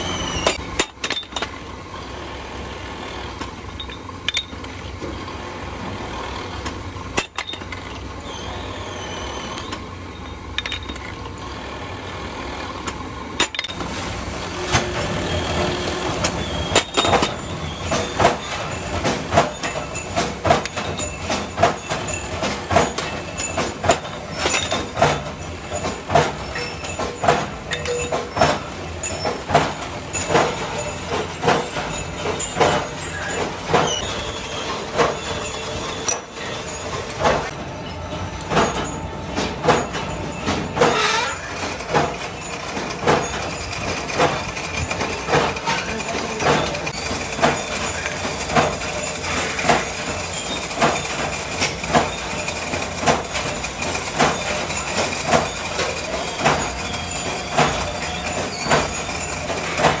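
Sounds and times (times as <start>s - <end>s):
metal lathe machining steel: 0.0s - 39.3s, 39.9s - 60.0s
sharp metallic clacks: 12.8s - 37.6s, 38.4s - 60.0s.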